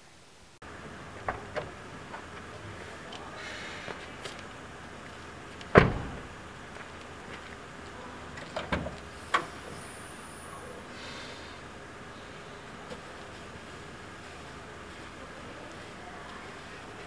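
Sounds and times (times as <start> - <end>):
heavy thump: 5.7 - 6.3.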